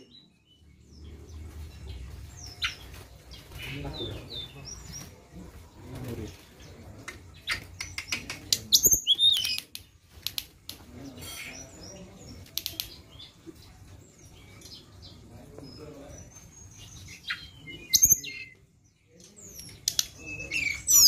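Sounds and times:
bird chirps and clicks: 0:06.9 - 0:21.0.

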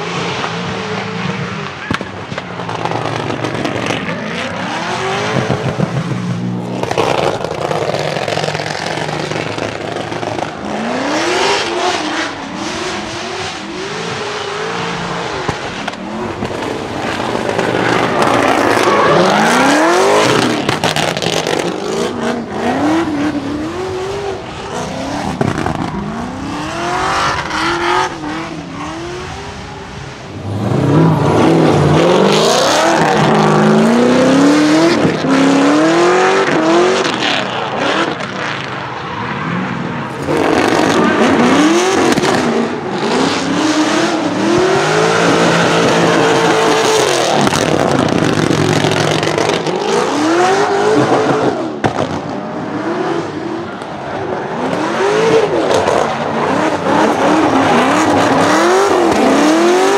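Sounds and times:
exhaust backfire crackles: 0:00.3 - 0:35.4, 0:40.1 - 0:52.4
car engine revving hard: 0:02.6 - 0:38.8, 0:39.5 - 0:59.9.

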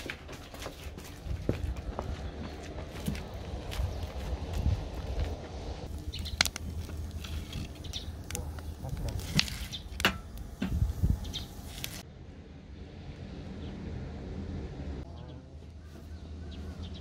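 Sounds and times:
footsteps on brick path: 0:00.0 - 0:09.9
wood fire crackling and popping: 0:05.0 - 0:12.0.

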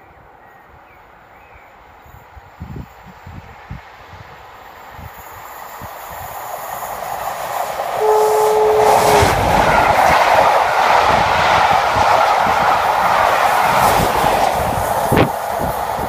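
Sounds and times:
train passing: 0:00.0 - 0:16.0
wheel and rail noise: 0:00.2 - 0:16.0
locomotive horn: 0:08.0 - 0:10.4.

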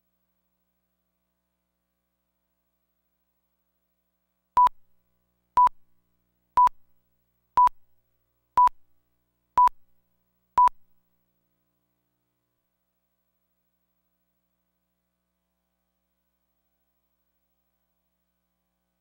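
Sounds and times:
short high beeps: 0:10.6 - 0:10.8.

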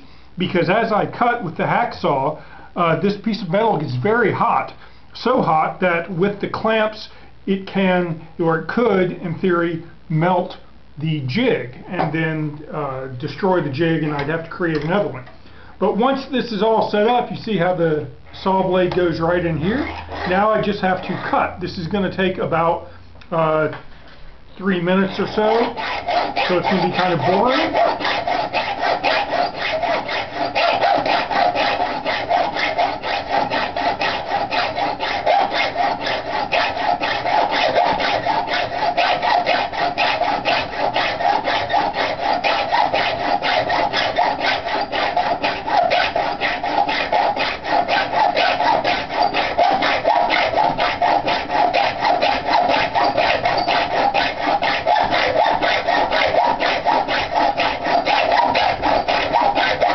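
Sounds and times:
hacksaw cutting steel: 0:19.8 - 0:21.2, 0:25.4 - 0:59.9.

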